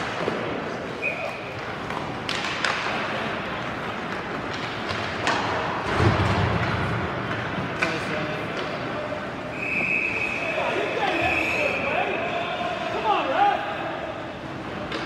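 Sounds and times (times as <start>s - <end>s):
hockey sticks and puck clacking: 0.0s - 11.8s, 14.4s - 15.0s
murmur of spectators: 0.0s - 15.0s
referee whistle: 9.5s - 12.3s.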